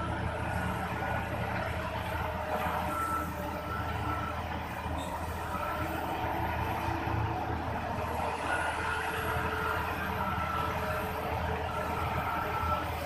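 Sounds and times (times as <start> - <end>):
reversing alarm beeps: 0.0 - 6.8, 8.4 - 13.0
heavy diesel machinery drone: 0.0 - 13.0.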